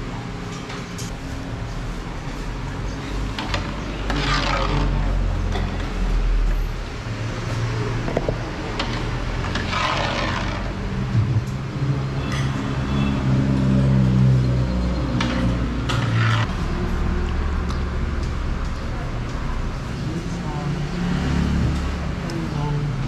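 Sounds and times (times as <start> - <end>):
passing traffic rush: 0.0 - 23.0
vehicle engine running: 9.7 - 12.2.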